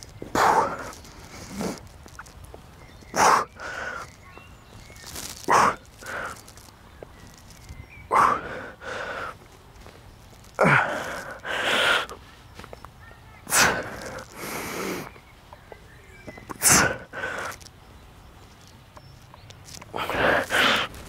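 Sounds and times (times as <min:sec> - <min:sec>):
drawn-in breath: 0:03.1 - 0:04.1, 0:05.4 - 0:06.5, 0:08.1 - 0:09.4, 0:10.6 - 0:12.2.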